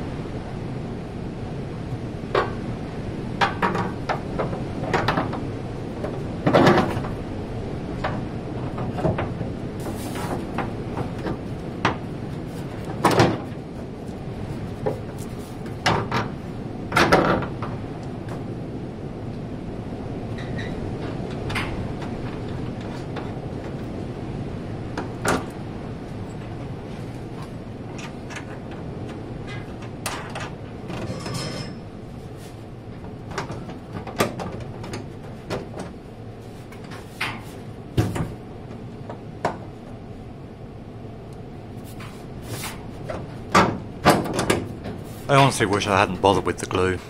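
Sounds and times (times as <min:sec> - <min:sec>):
low background noise: 0:44.8 - 0:47.0.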